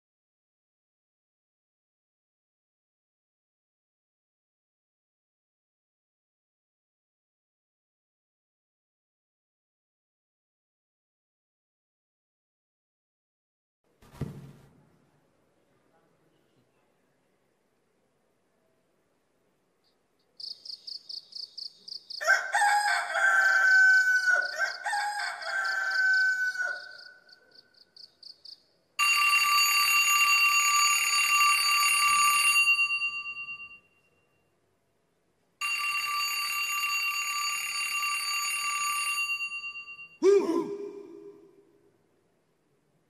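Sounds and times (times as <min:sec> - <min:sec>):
rooster crowing: 0:22.1 - 0:27.3.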